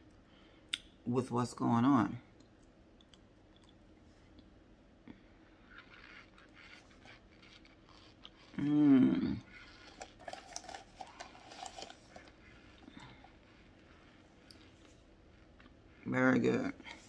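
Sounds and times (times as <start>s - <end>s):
person chewing with crunchy clicks: 2.4s - 4.5s, 5.1s - 16.1s
person humming mmm: 8.5s - 9.6s.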